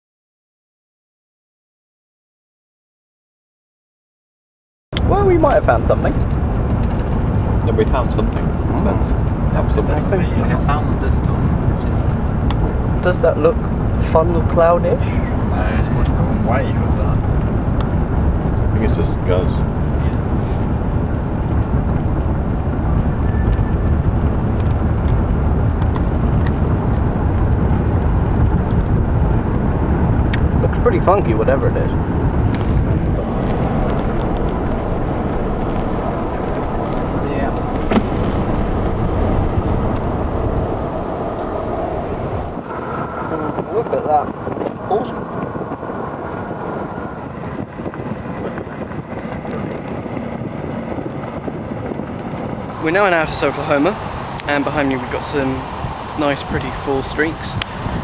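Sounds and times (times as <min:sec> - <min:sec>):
car cabin road noise: 0:05.0 - 0:58.0.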